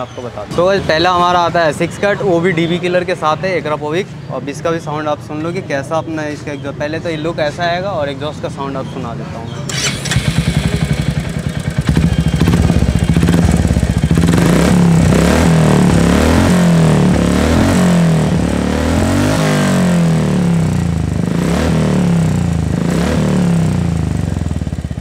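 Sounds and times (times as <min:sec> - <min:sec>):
motorcycle engine revving: 0:09.7 - 0:25.0.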